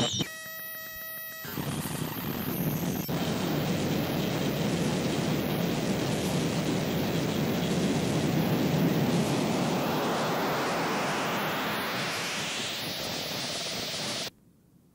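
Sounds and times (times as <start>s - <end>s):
distorted static and rumble: 0.0s - 0.3s, 1.4s - 14.3s
rising bright hiss: 7.0s - 14.3s.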